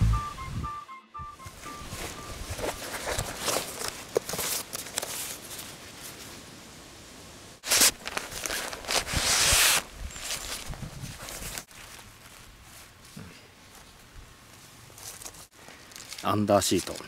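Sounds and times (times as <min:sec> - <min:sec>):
footsteps: 0:01.4 - 0:04.5
rustling: 0:01.6 - 0:06.4, 0:07.6 - 0:17.0.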